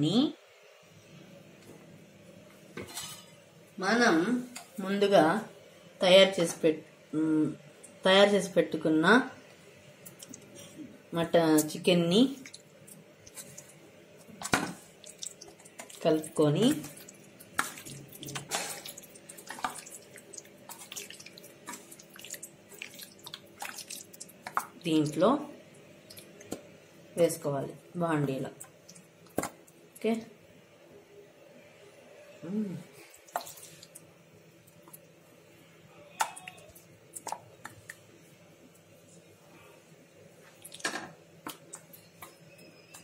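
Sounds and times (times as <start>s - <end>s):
faint steady hum: 0.0s - 43.0s
hand squelching wet meat: 14.9s - 16.1s, 16.8s - 24.6s.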